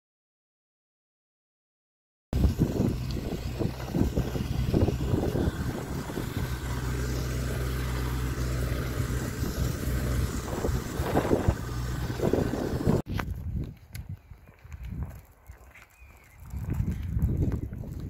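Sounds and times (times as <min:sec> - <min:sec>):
wind on microphone: 0:02.4 - 0:06.9, 0:09.0 - 0:18.0
tractor engine running: 0:02.4 - 0:13.1.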